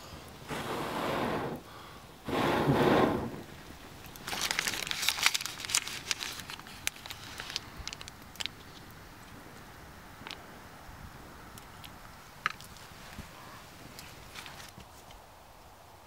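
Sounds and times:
loud rustling burst: 0.5 - 6.5
foil wrapper crinkling: 4.0 - 8.6.

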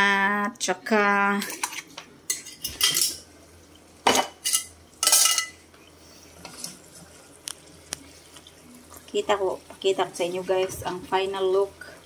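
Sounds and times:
metal cookware clattering: 1.4 - 3.2, 4.0 - 5.6.

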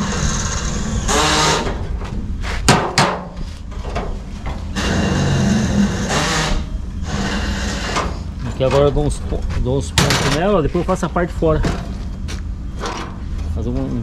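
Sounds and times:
sharp metallic knocks: 2.7 - 3.4.

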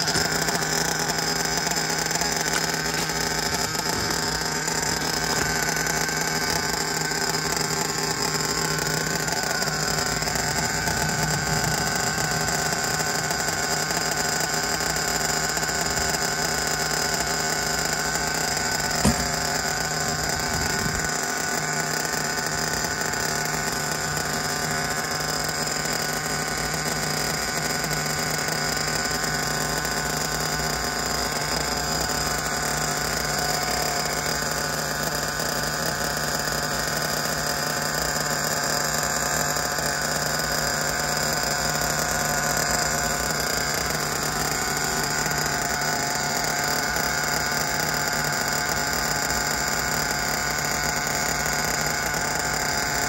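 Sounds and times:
model car engine idling: 0.0 - 53.0.

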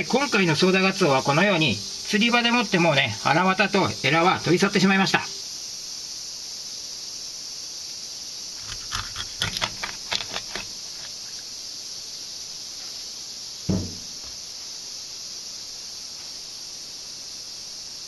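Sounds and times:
high hiss: 0.0 - 18.0
knife crunching through fish bone: 8.6 - 11.4
knife thud on cutting board: 13.7 - 14.3.

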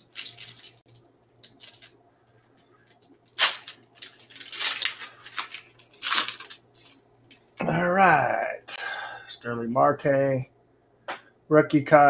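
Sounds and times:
foil wrapper crinkling and tearing: 0.0 - 7.4
faint steady hum: 0.0 - 12.0.

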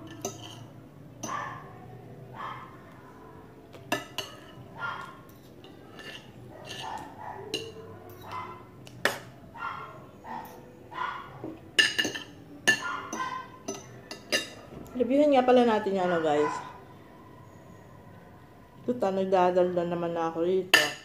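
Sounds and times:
cutlery clinking on ceramic plate: 0.0 - 1.4, 3.8 - 9.3, 11.4 - 14.6, 20.7 - 21.0.

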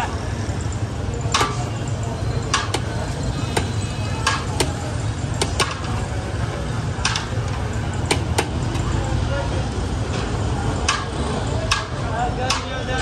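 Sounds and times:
low rumble of street noise: 0.0 - 13.0
kitchen utensils clacking: 1.2 - 6.1.

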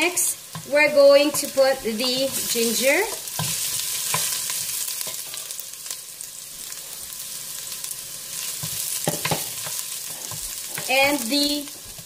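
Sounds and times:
ginger and garlic sizzling in oil: 0.0 - 12.0
wooden spoon knocking and scraping pot: 0.5 - 5.4, 8.6 - 12.0.

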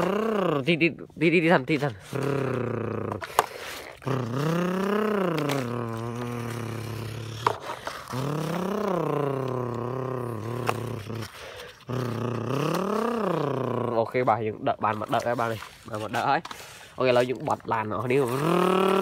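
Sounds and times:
person imitating an engine: 0.0 - 1.0, 2.0 - 14.3, 17.8 - 19.0
plastic toy parts scraping in dirt: 3.0 - 13.0, 14.0 - 19.0.

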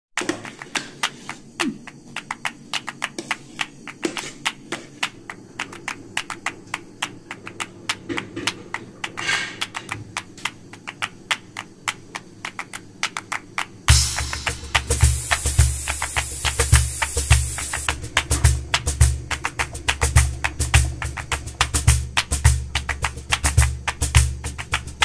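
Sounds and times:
rapid sharp clicks: 10.4 - 25.0.

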